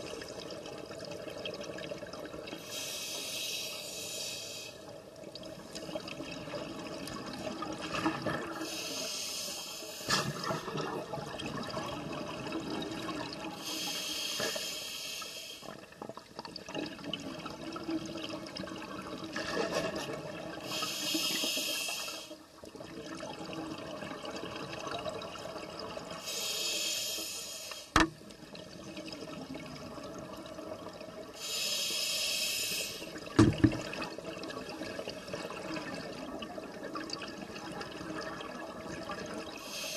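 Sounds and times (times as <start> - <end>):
regulator hissing inhale: 2.6 - 4.8, 8.6 - 10.2, 13.6 - 15.8, 20.6 - 22.4, 26.2 - 27.9, 31.4 - 33.1, 39.6 - 39.9.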